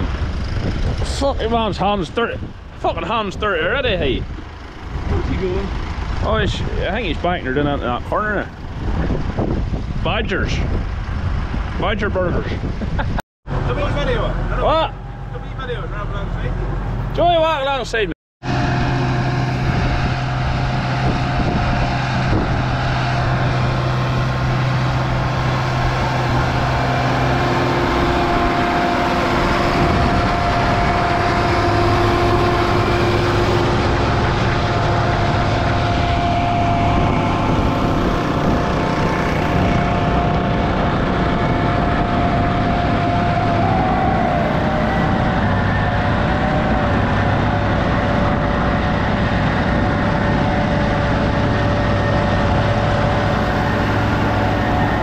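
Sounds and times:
tractor engine under load: 0.0 - 11.8, 18.4 - 55.0
high whine: 18.4 - 55.0.

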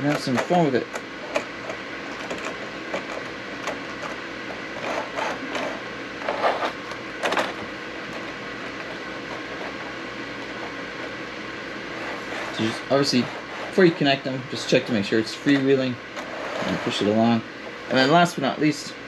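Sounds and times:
steady background hum: 0.0 - 19.0.

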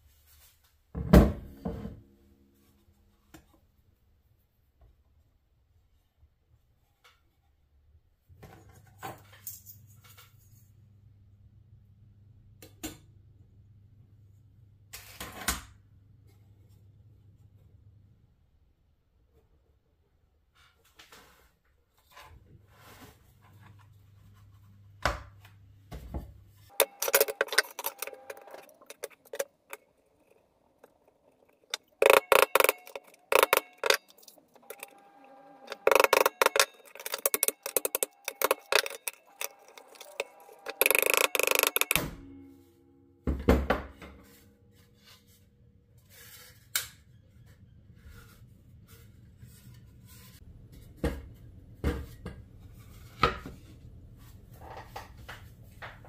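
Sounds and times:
hard objects clattering: 26.7 - 42.1.

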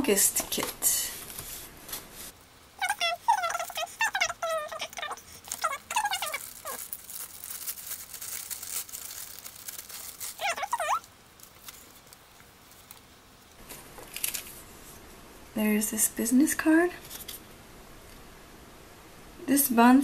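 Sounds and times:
tissue paper rustling: 1.0 - 13.2.

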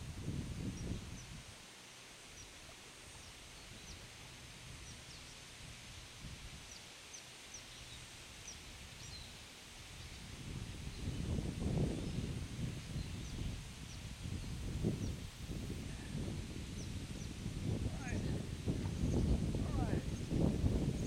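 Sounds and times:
faint riverside hiss: 0.0 - 21.0
small birds chirping: 6.7 - 9.4, 12.9 - 15.3.

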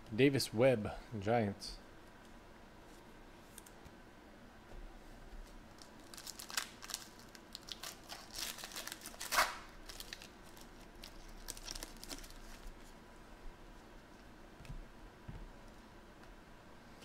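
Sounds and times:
foil pack tearing and crinkling: 5.8 - 12.7.

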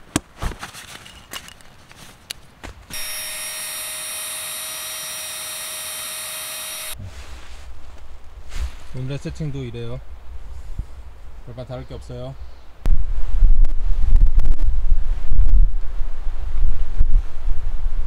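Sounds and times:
rustling of pads: 0.0 - 2.9, 7.0 - 9.1
electric air pump running: 2.9 - 7.0.

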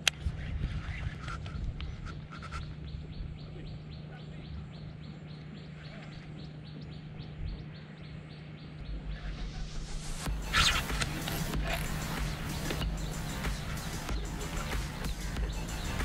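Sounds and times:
steady low hum: 0.0 - 16.0
bird chirping: 2.3 - 16.0
low rumble: 6.0 - 15.8.

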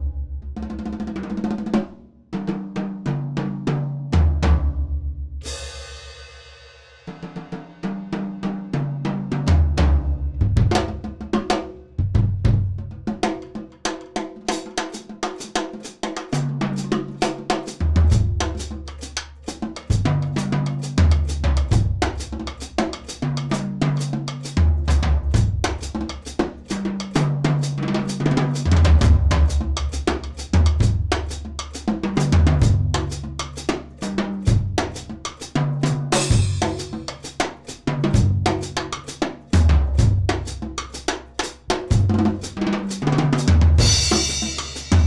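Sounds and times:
drum kit groove: 5.4 - 45.0
cymbal crash: 43.8 - 45.0.

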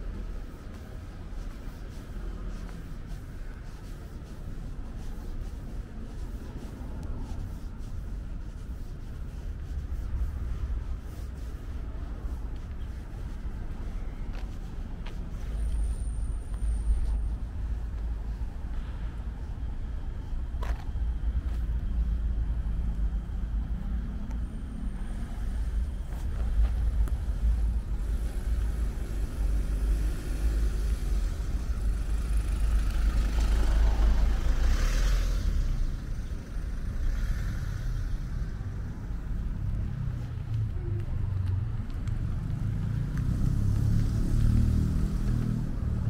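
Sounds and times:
low rumble of traffic: 0.0 - 46.0
passing vehicle hiss: 21.4 - 46.0.

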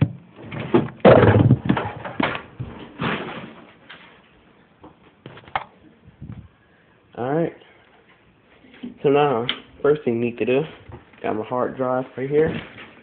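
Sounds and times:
computer tower knocking and scraping: 0.0 - 3.6.

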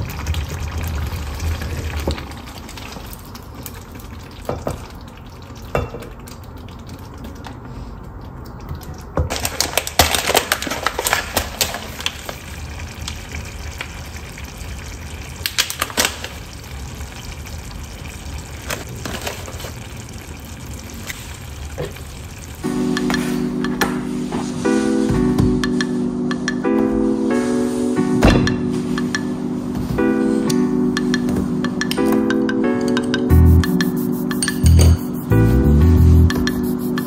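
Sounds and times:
stew simmering: 0.0 - 9.2, 10.7 - 22.6.

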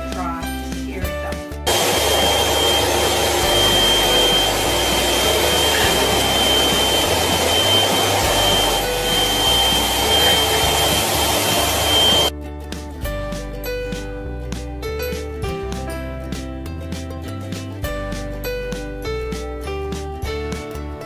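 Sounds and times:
vacuum cleaner with high whistle: 1.7 - 12.3.

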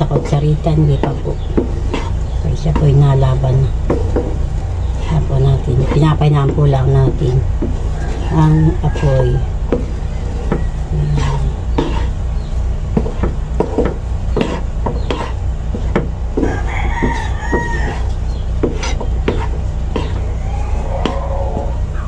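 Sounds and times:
wooden spatula scraping frying pan: 0.0 - 21.7
steady low hum: 0.0 - 22.0
rooster crowing: 7.8 - 11.4, 16.4 - 18.2, 20.2 - 22.0.

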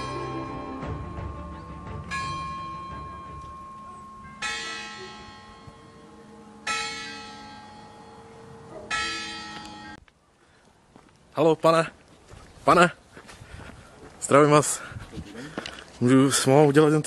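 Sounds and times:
large bell tolling: 0.0 - 10.0.

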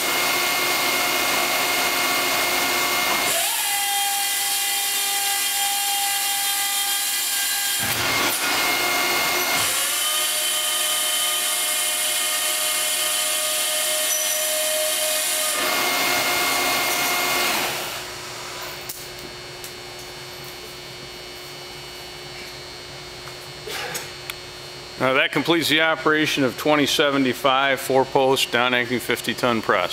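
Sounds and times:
hydraulic press whining: 0.0 - 19.0.

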